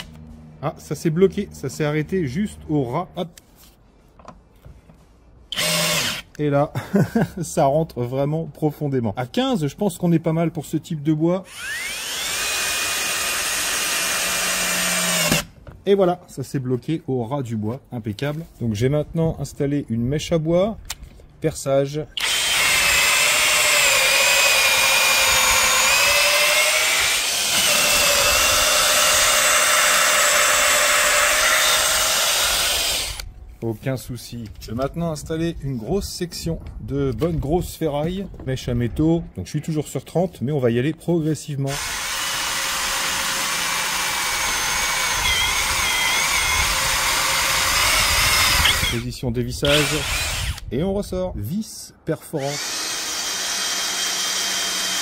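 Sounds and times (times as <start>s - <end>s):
drill boring into wood: 5.5s - 6.3s, 11.4s - 15.5s, 22.2s - 33.2s, 41.7s - 49.0s, 49.6s - 50.7s, 52.4s - 55.0s.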